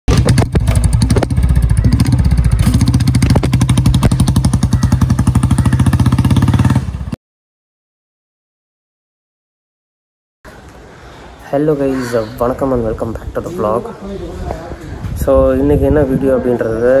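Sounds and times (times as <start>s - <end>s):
motorcycle engine running: 0.1s - 7.2s.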